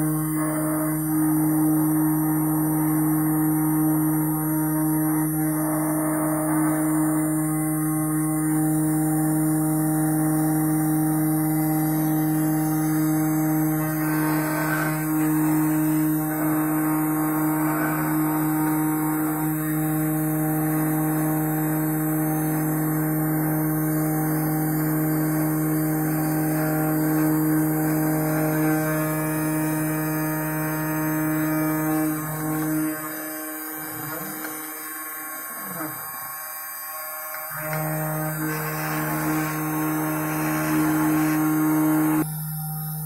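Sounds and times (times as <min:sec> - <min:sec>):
spindle motor running: 0:00.0 - 0:43.0
scraping cutting noise: 0:11.6 - 0:42.3.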